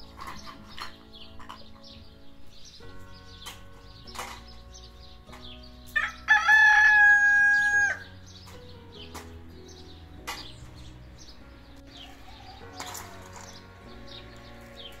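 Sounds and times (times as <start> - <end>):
rooster crowing: 6.0 - 8.0, 12.0 - 13.3.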